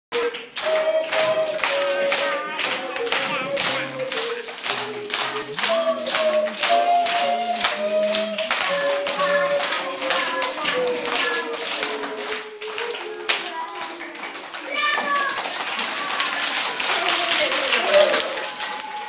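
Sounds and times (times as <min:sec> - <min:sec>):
harmonica tune: 0:00.1 - 0:12.6
children clapping in time: 0:00.1 - 0:19.0.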